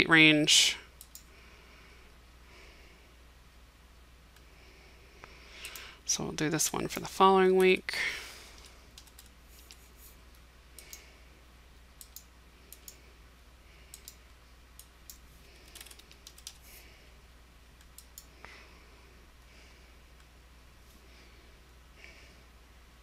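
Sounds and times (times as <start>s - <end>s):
faint low hum: 0.0s - 23.0s
mouse and keyboard clicks: 12.0s - 13.0s, 13.9s - 14.2s, 14.8s - 16.6s.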